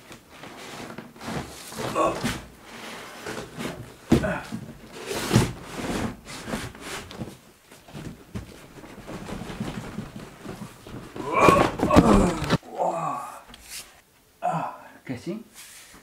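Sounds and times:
cardboard handling and scraping: 0:00.1 - 0:12.6
cardboard box thumping down: 0:08.0 - 0:12.6.

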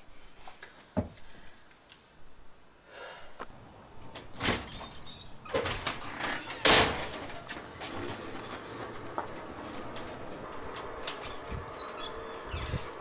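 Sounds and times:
door rattling in its frame: 0:04.1 - 0:13.0.

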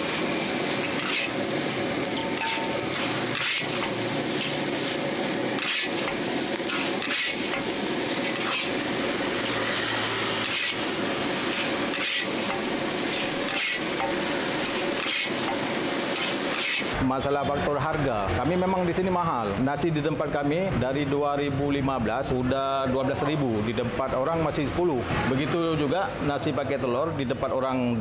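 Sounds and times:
steady rushing noise: 0:00.0 - 0:17.1.

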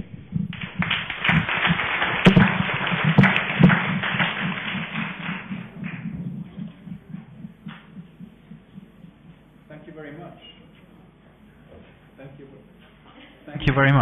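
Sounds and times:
audience applauding: 0:00.5 - 0:07.1.

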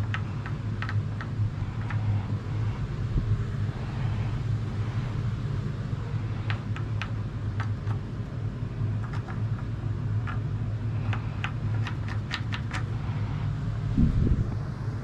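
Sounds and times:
steady low hum: 0:00.0 - 0:15.0
marker scratching on wood: 0:11.1 - 0:13.0.

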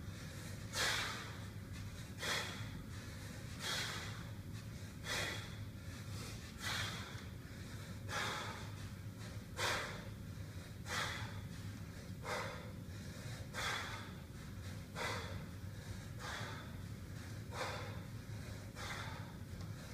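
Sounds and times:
man's sharp forceful breaths: 0:00.0 - 0:19.9.

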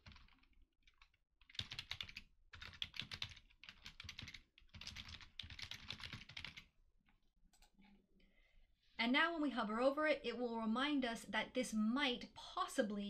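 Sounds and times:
typing on computer keyboard: 0:00.0 - 0:06.7.

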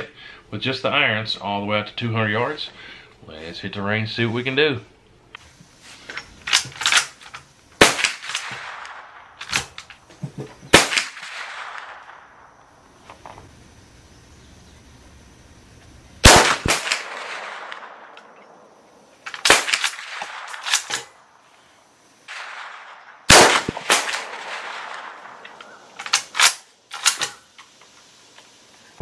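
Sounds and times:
rifle shots echoing: 0:07.8 - 0:09.8, 0:10.7 - 0:12.6, 0:16.2 - 0:18.6, 0:19.3 - 0:21.2, 0:22.3 - 0:27.4.

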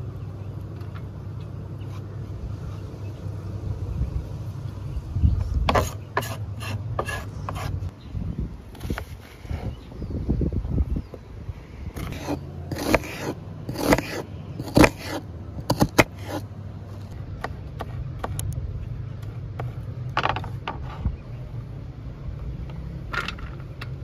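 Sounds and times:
knife cutting onion on board: 0:05.7 - 0:07.8, 0:12.0 - 0:16.5.

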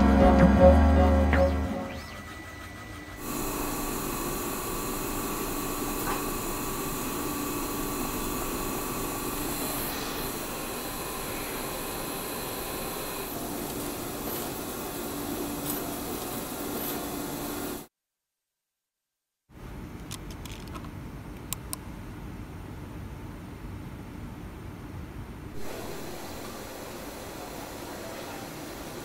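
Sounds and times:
machine whirring: 0:00.0 - 0:17.9, 0:25.5 - 0:29.0.

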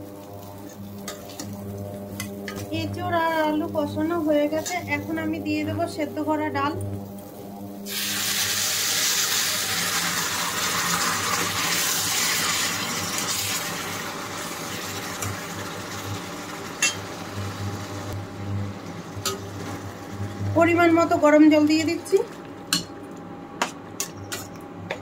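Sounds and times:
liquid hissing in a hot pan: 0:07.8 - 0:18.1.

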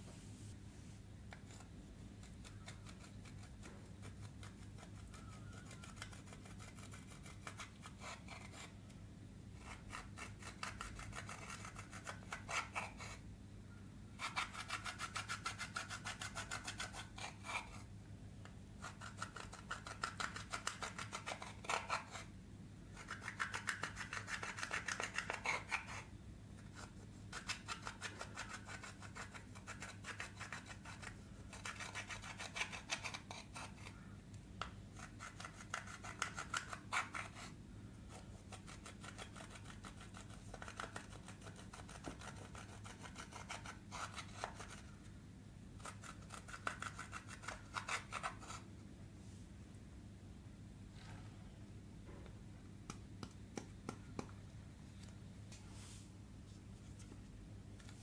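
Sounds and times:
plastic tool scratching powder: 0:01.3 - 0:08.8, 0:09.6 - 0:13.2, 0:14.2 - 0:17.9, 0:18.8 - 0:22.3, 0:22.9 - 0:26.1, 0:26.7 - 0:34.0, 0:34.9 - 0:37.5, 0:38.1 - 0:45.0.

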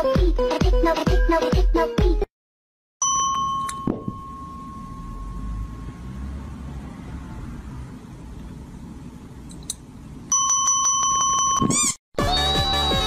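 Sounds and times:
high thin tone: 0:03.0 - 0:06.4.

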